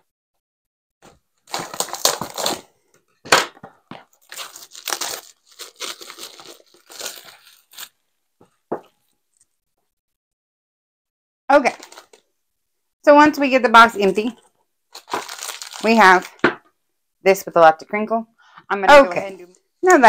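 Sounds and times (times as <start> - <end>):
plastic and cardboard crinkling: 1.0 - 9.5, 11.7 - 12.3, 14.0 - 16.6.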